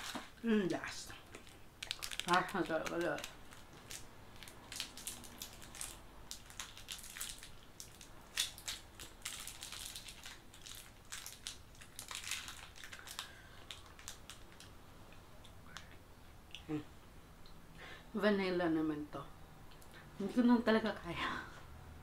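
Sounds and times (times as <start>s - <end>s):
foil wrapper crinkling: 0.0s - 14.7s.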